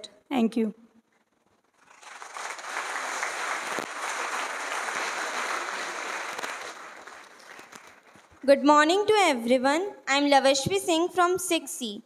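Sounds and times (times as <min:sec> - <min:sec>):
audience applauding: 0:01.8 - 0:08.4.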